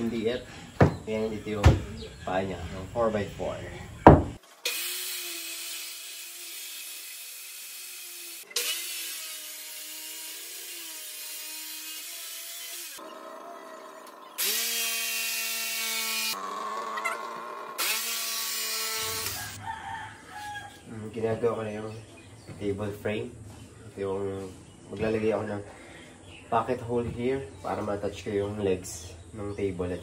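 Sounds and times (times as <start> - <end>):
jigsaw cutting: 4.4 - 13.1, 14.0 - 19.6
circular saw cutting wood: 4.4 - 19.6.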